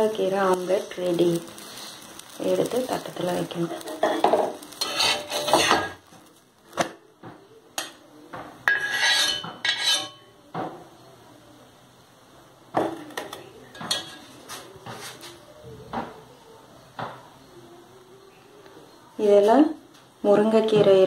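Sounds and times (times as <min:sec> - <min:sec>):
spatula scraping griddle pan: 0:02.9 - 0:06.2, 0:08.6 - 0:10.2, 0:13.8 - 0:15.4
metal plate clinking against pan: 0:08.7 - 0:10.2.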